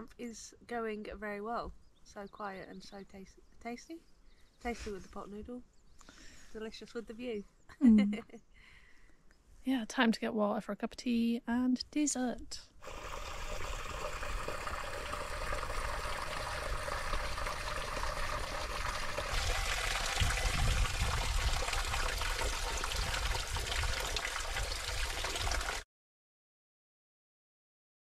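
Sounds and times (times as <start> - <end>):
stream water trickling: 12.8 - 25.8
low microphone rumble: 16.4 - 24.1.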